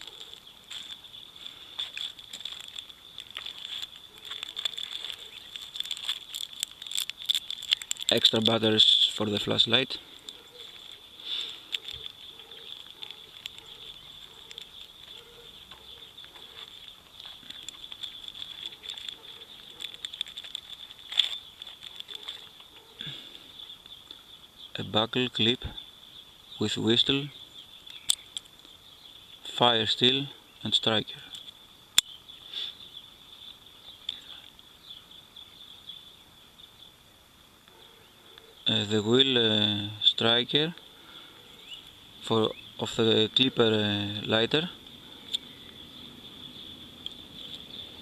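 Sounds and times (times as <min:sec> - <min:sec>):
plastic bags crinkling: 0:00.0 - 0:22.8
insect chirring: 0:00.0 - 0:48.0
small items clicking: 0:01.8 - 0:22.9, 0:27.8 - 0:28.7, 0:31.2 - 0:32.1.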